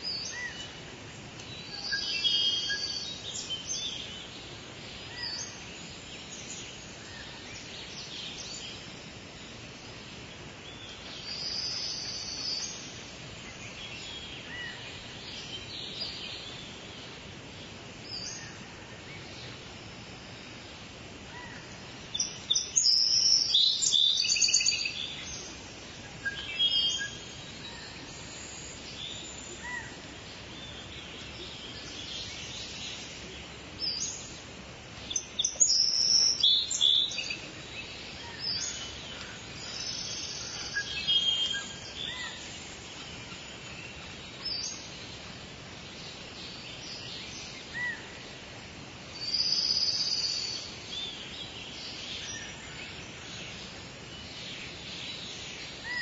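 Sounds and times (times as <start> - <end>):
insects hissing: 0.0 - 56.0
birds chirping and calling: 21.3 - 48.4.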